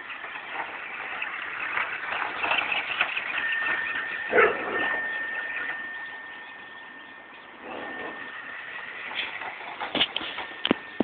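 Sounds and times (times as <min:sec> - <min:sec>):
toy car electric motor whining: 0:00.0 - 0:11.0
dog bark: 0:04.3 - 0:04.9.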